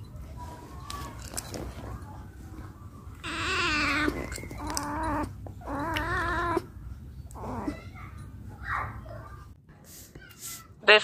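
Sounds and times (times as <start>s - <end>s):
cat yowling: 3.2s - 6.7s.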